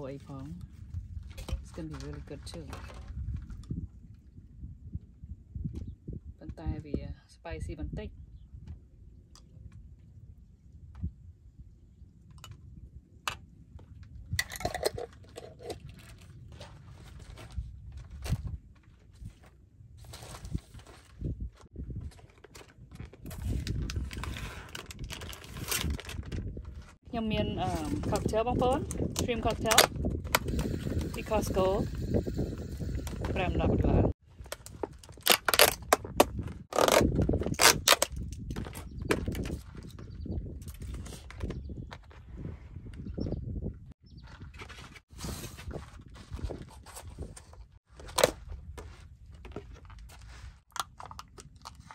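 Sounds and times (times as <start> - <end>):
plastic bowls clattering: 14.4 - 16.1.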